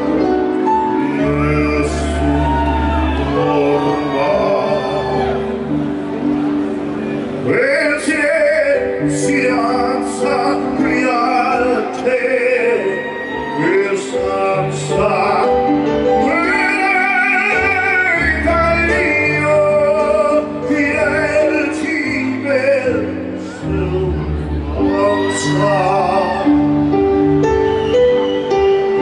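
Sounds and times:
singer with strong vibrato: 0:00.8 - 0:05.7.

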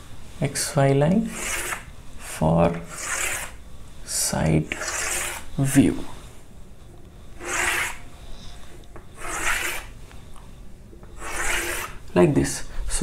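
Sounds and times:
chalk scraping on blackboard: 0:01.3 - 0:01.9, 0:02.7 - 0:03.6, 0:04.7 - 0:05.5, 0:07.4 - 0:08.0, 0:09.2 - 0:10.0, 0:11.2 - 0:12.0.

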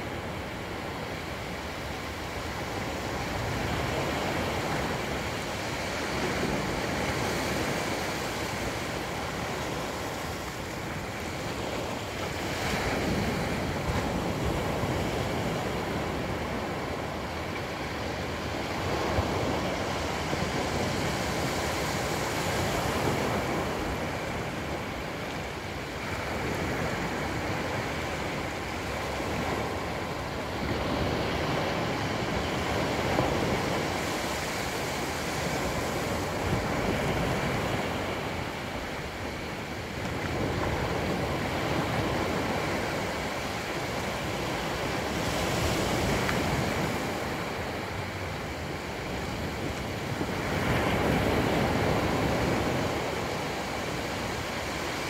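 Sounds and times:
waves breaking on beach: 0:00.0 - 0:55.0.

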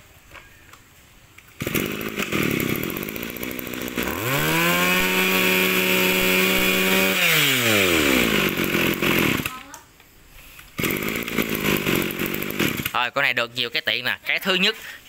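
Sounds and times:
brush cutter engine revving: 0:01.5 - 0:09.7, 0:10.8 - 0:13.2.

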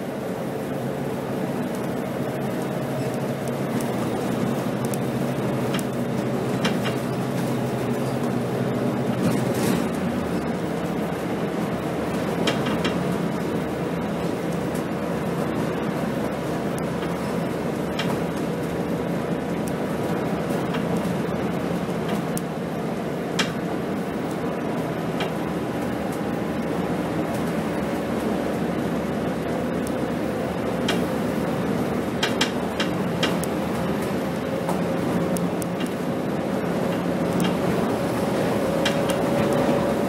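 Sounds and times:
bus engine hum: 0:00.0 - 0:40.0
road and tyre noise: 0:00.0 - 0:40.0
sharp clicks in cabin: 0:23.4 - 0:23.6, 0:30.8 - 0:31.1, 0:32.2 - 0:33.5.

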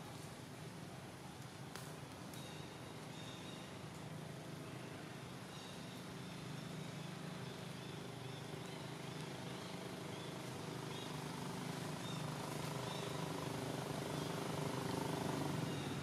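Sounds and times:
vehicle engine running: 0:06.0 - 0:16.0.

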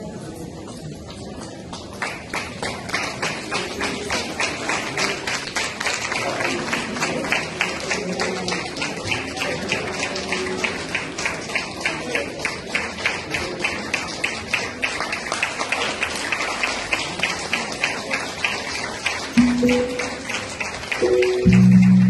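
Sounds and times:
rhythmic clapping: 0:01.7 - 0:22.0
held musical note: 0:19.4 - 0:22.0.

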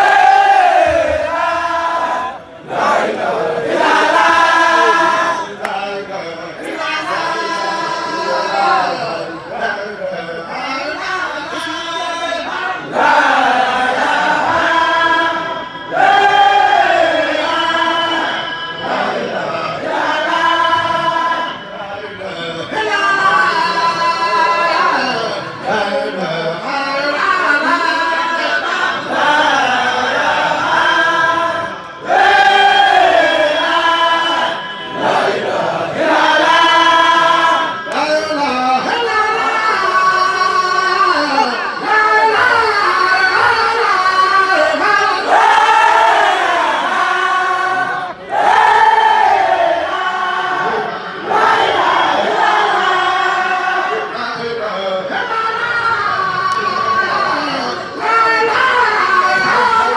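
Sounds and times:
group of voices chanting: 0:00.0 - 0:05.8
men chanting together: 0:00.0 - 0:21.6, 0:22.3 - 0:55.1.

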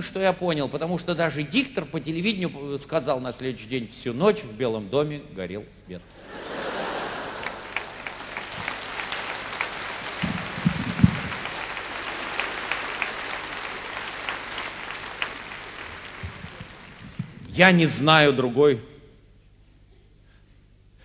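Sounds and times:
audience applauding: 0:06.2 - 0:17.8
dull low thuds: 0:10.2 - 0:11.5.

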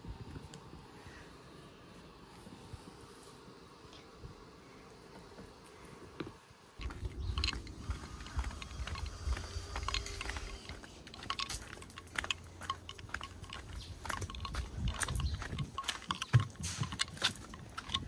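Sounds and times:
wind rumble on microphone: 0:00.0 - 0:01.1, 0:06.8 - 0:18.0
footsteps on gravel and boardwalk: 0:05.1 - 0:18.0.

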